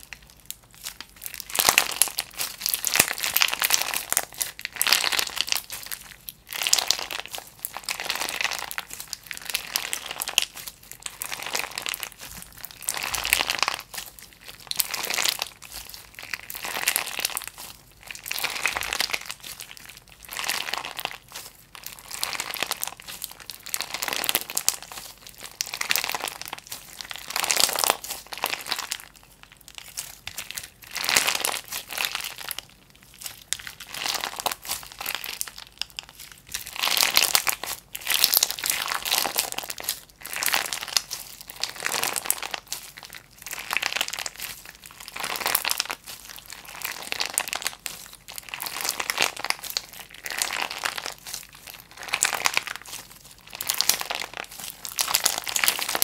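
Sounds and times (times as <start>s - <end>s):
slime crinkling and crackling: 0.0s - 56.0s.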